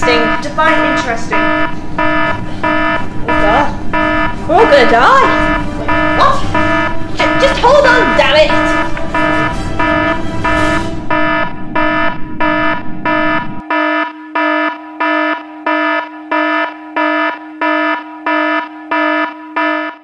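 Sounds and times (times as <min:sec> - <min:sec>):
low rumble: 0:00.0 - 0:13.6
steady low tone: 0:00.0 - 0:13.7
electronic alarm pulsing: 0:00.0 - 0:20.0.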